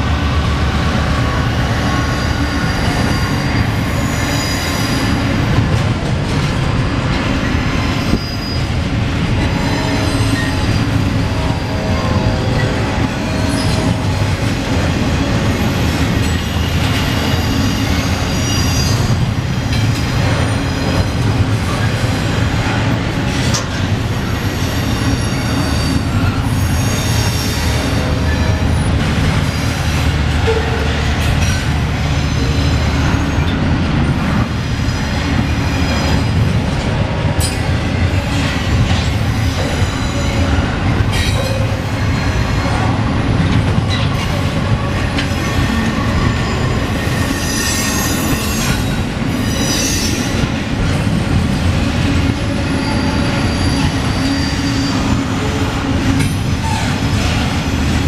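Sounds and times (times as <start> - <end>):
train wheels rumbling on rail: 0.0 - 58.0
high-pitched wheel squeal: 1.8 - 5.2, 8.0 - 8.7, 16.2 - 19.2, 45.5 - 50.4, 52.5 - 55.6.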